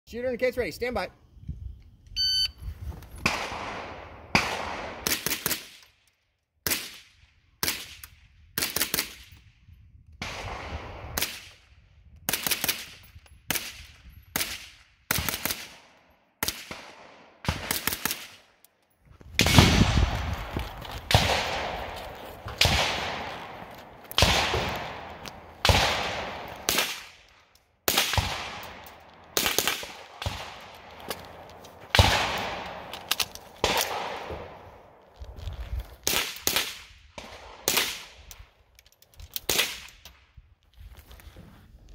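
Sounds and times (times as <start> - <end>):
rifle shots: 3.2 - 5.8, 10.2 - 11.5, 14.4 - 18.4, 19.4 - 34.7, 36.0 - 38.2.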